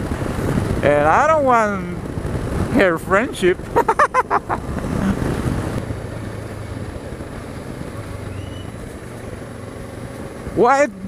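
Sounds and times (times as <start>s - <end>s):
wind on microphone: 0.0s - 5.9s
motorcycle engine running: 0.0s - 11.0s
tyres on wet road: 0.0s - 11.0s.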